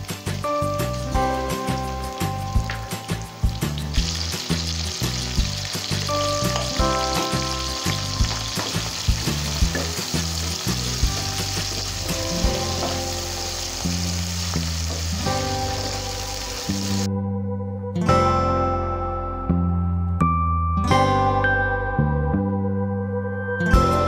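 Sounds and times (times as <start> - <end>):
vegetables sizzling in hot oil: 0.0 - 17.1.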